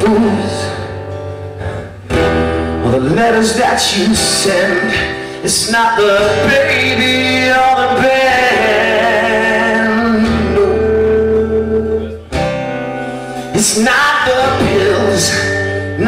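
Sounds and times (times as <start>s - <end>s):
live rock band playing: 0.0s - 16.0s
man singing long notes: 2.8s - 12.3s, 13.3s - 16.0s.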